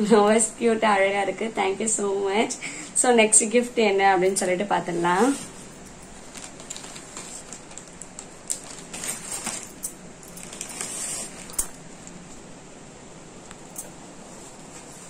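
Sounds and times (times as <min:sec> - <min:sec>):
rustling: 0:04.8 - 0:12.2.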